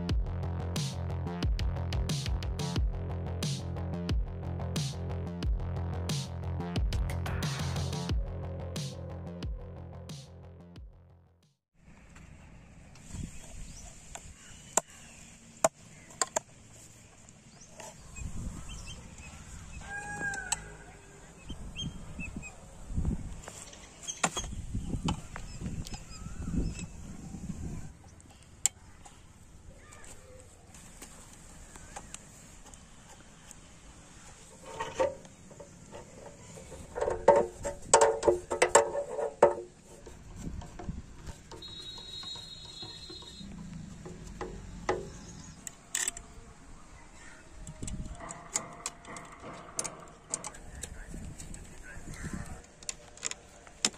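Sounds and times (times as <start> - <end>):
faint bird chirp: 23.6 - 32.4, 41.6 - 43.8
low handling rumble: 33.8 - 46.9.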